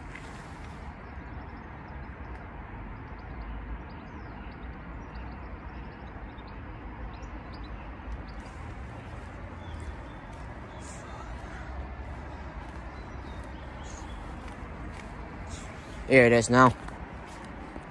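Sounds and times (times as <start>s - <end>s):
faint bird chirps: 3.0s - 14.6s, 15.4s - 16.8s.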